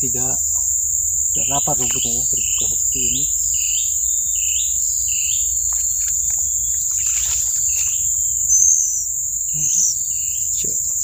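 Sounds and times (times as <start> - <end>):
forest insects droning: 0.0 - 11.0
hand rustling in tree hollow: 5.6 - 8.3.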